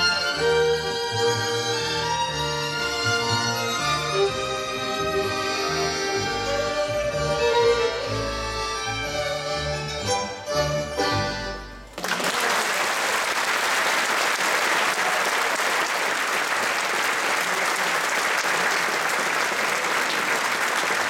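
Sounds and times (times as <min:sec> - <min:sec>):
large audience applauding: 0:11.9 - 0:21.0.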